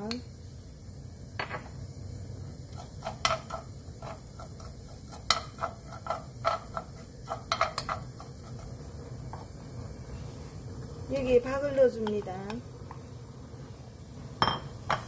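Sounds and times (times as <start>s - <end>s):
low steady hum: 0.0s - 15.0s
wooden spoon scraping wok: 2.7s - 13.0s.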